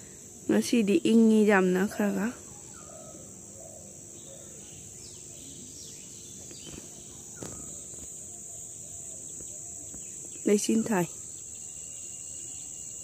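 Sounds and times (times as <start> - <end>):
insects droning: 0.0 - 13.0
faint bird chirps and whistles: 2.4 - 13.0.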